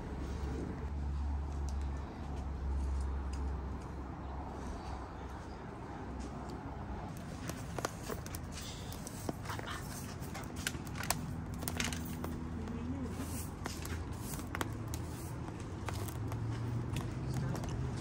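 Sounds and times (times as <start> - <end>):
low steady fire rumble: 0.0 - 18.0
wood fire crackling and popping: 7.1 - 18.0.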